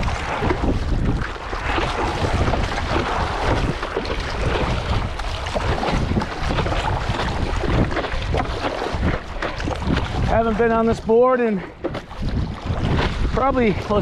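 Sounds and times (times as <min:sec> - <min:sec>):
water splashing against board: 0:00.0 - 0:14.0
wind buffeting microphone: 0:00.0 - 0:14.0.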